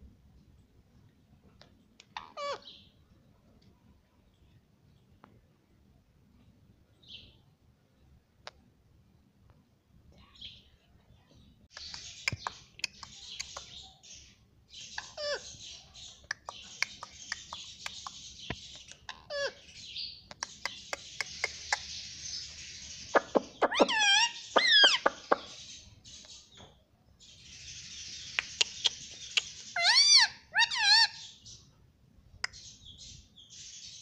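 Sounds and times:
parakeet chattering softly: 0:11.7 - 0:22.3, 0:27.9 - 0:31.2
parakeet squawks: 0:23.1 - 0:25.5, 0:28.4 - 0:31.3.

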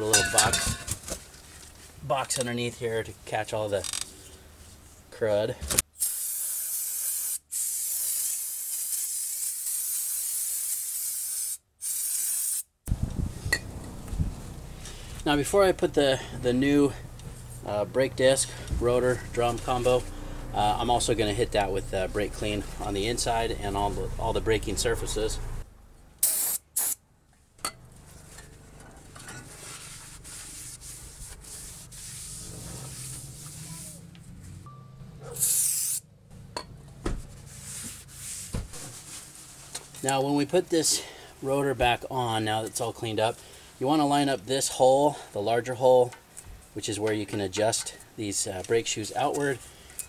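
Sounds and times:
aerosol can spraying: 0:06.0 - 0:12.7, 0:26.2 - 0:27.0, 0:35.4 - 0:36.0
gloved hand rubbing metal: 0:29.4 - 0:34.1, 0:37.3 - 0:39.8.

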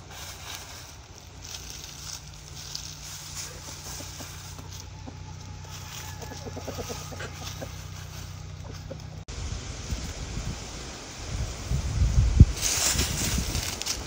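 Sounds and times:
chickens clucking: 0:00.6 - 0:09.3.

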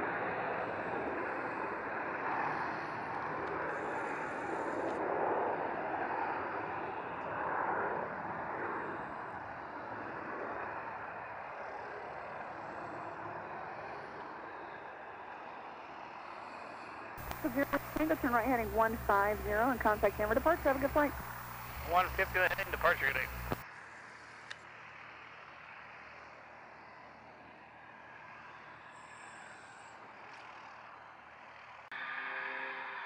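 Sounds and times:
jet engines rushing: 0:17.2 - 0:23.6.

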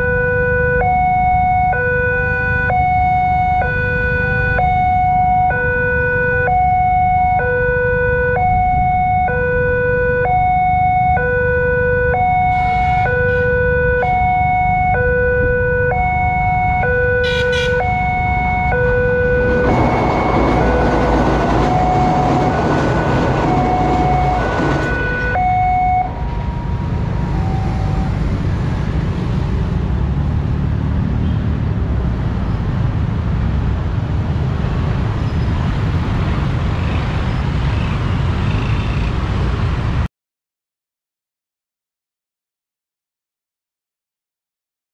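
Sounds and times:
two-tone crossing alarm: 0:00.0 - 0:28.3
motorcycle and car traffic hum: 0:00.0 - 0:40.1
train rattling across bridge: 0:19.4 - 0:25.4.

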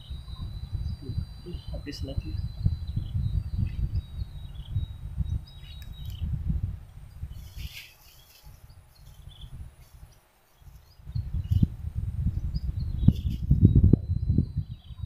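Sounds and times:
faint bird chirps: 0:00.0 - 0:06.4, 0:12.4 - 0:15.0
wind buffeting microphone: 0:00.0 - 0:15.0.

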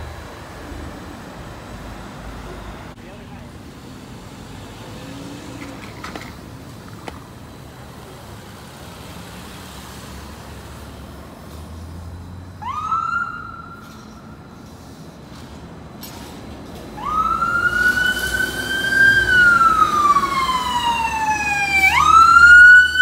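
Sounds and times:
street traffic noise: 0:00.0 - 0:23.0
siren wailing: 0:12.6 - 0:14.0, 0:17.0 - 0:23.0.

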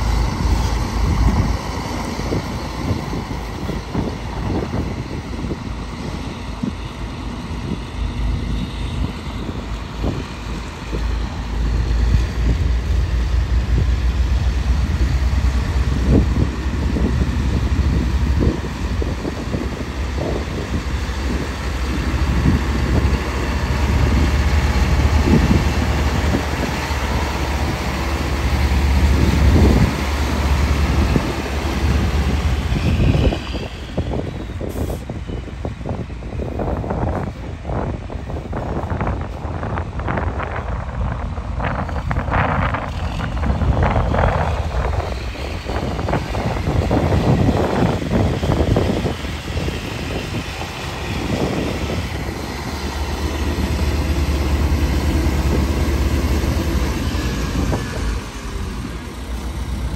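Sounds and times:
diesel truck engine passing: 0:41.3 - 0:59.9.

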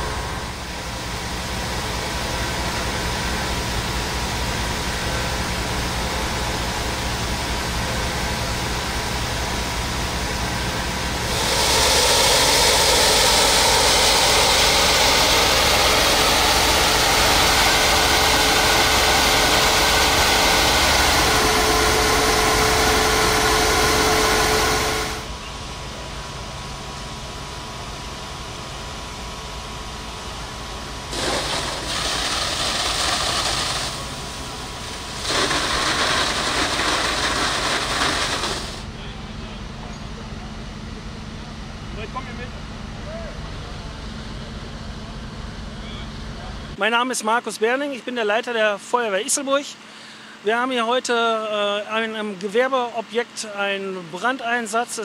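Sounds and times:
engine humming: 0:00.0 - 0:28.6
high-pressure water jet hissing: 0:10.4 - 0:25.3, 0:31.1 - 0:38.8.

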